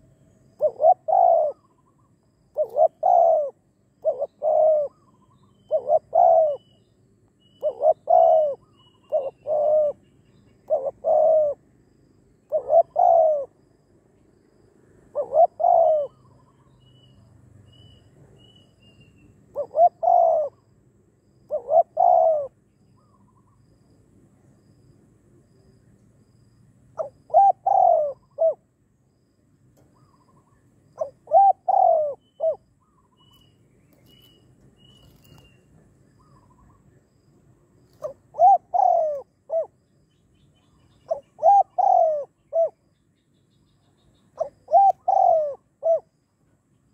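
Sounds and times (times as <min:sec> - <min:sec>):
dove cooing: 0:00.0 - 0:06.8, 0:07.6 - 0:10.0, 0:10.6 - 0:11.7, 0:12.5 - 0:13.6, 0:15.0 - 0:16.7, 0:19.5 - 0:20.7, 0:21.5 - 0:23.5, 0:27.0 - 0:28.7, 0:30.0 - 0:33.3, 0:37.9 - 0:39.8, 0:41.0 - 0:42.8, 0:44.4 - 0:46.1
faint high chirps: 0:00.0 - 0:11.5, 0:15.2 - 0:20.6, 0:29.8 - 0:45.4.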